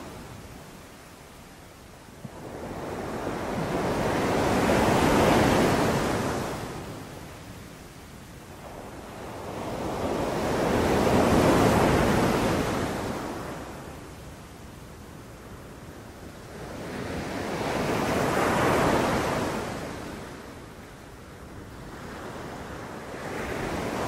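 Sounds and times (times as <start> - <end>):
sea waves breaking on beach: 2.2 - 7.1, 8.5 - 14.0.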